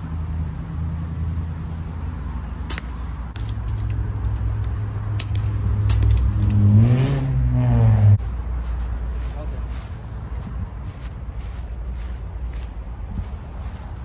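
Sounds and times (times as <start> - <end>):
sharp cracks: 2.6 - 6.7
engine revving: 4.4 - 8.2.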